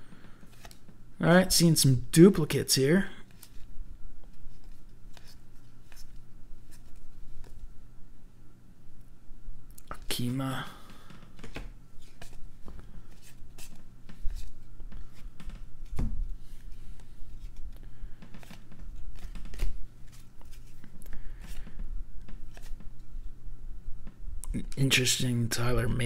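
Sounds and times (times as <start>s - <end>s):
cards flipped by hand: 0.4s - 1.0s, 3.3s - 7.6s, 11.1s - 23.1s.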